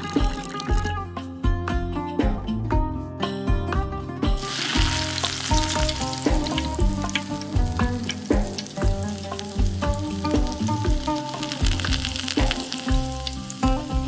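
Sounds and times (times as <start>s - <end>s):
background music with steady beat: 0.0s - 14.0s
water boiling and bubbling: 4.5s - 14.0s.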